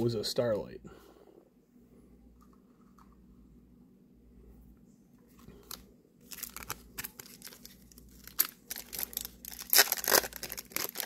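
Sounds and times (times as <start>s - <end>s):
foil wrapper crinkling and tearing: 5.6s - 11.0s.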